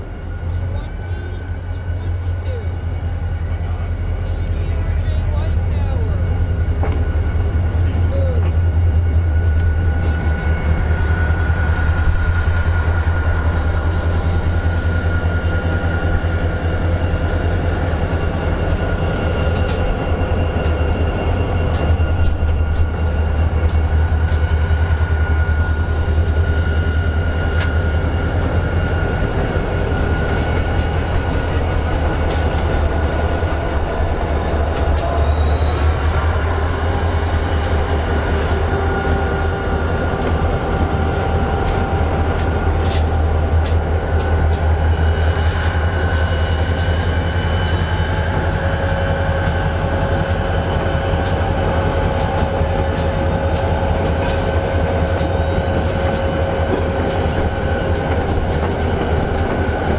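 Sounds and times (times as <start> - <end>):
diesel locomotive engine rumble: 0.0 - 59.9
high steady squeal: 0.0 - 59.9
sharp clicks from rails: 18.6 - 20.0, 23.6 - 24.8, 27.4 - 27.8, 30.2 - 34.0, 34.6 - 35.2, 40.1 - 44.8, 45.4 - 59.9.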